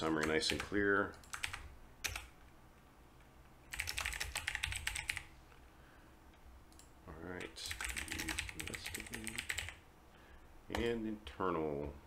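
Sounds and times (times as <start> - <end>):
typing on keyboard: 0.2 - 2.3, 3.7 - 5.3, 6.7 - 9.8.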